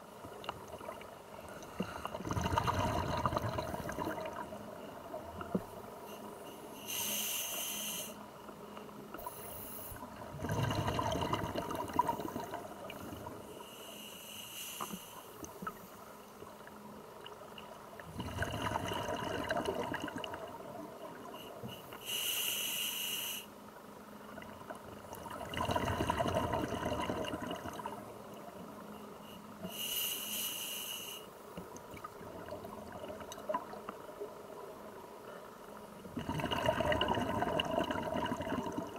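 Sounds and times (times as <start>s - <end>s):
regulator hissing inhale: 6.1s - 8.3s, 9.2s - 10.0s, 13.5s - 15.4s, 21.5s - 23.6s, 29.2s - 31.4s.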